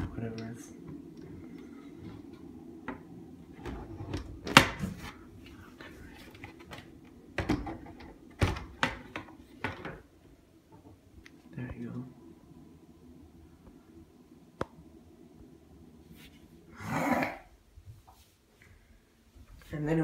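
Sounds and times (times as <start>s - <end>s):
faint low hum: 0.0s - 20.0s
plastic panels knocking and clattering: 6.5s - 10.0s.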